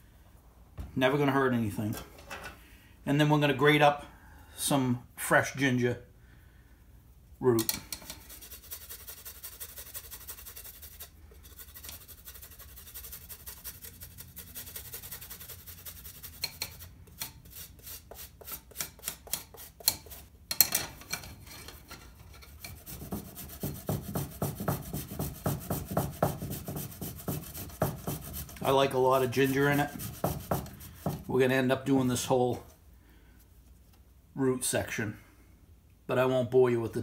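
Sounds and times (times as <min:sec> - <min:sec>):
ginger rasping on metal grater: 0:08.0 - 0:20.2, 0:22.5 - 0:31.2.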